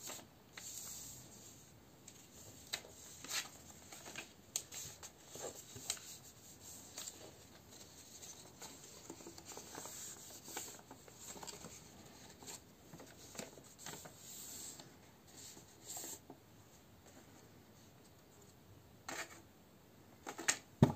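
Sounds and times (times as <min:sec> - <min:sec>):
paper rustling and folding: 0:00.0 - 0:16.3.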